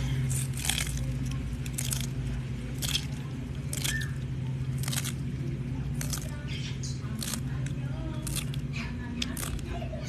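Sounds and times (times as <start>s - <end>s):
tortoise chewing cactus: 0.0s - 10.0s.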